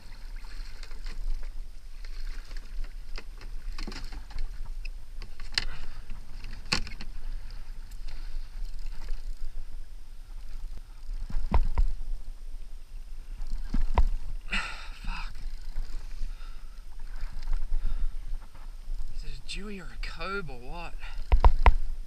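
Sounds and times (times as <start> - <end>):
water lapping against plastic hull: 0.0 - 9.6
wind rumble on microphone: 0.0 - 20.2, 20.9 - 22.0.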